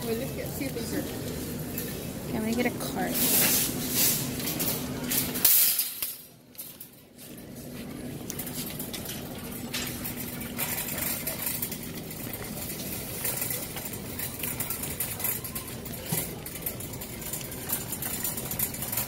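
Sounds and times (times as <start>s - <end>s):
cart wheels rolling: 0.0s - 19.0s
metal basket rattling: 8.4s - 19.0s.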